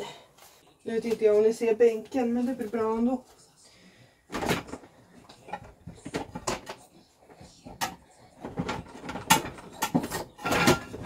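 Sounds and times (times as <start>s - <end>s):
dishes clinking and knocking: 4.3s - 11.0s.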